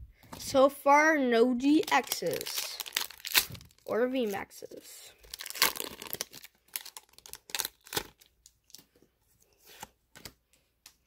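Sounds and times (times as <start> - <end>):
foil wrapper ripping and crinkling: 1.8 - 4.4, 5.2 - 8.8.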